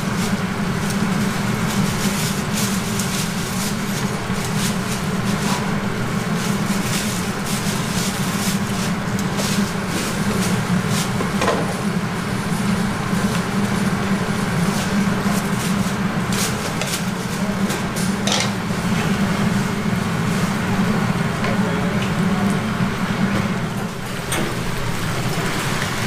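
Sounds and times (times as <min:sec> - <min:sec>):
chicken deep-frying in oil: 0:22.0 - 0:26.0.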